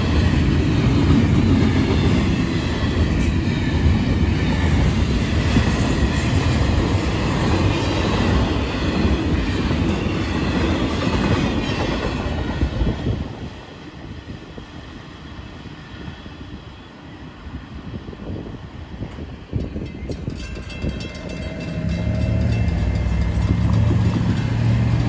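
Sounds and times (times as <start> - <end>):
freight train wheels clattering: 19.2 - 25.0.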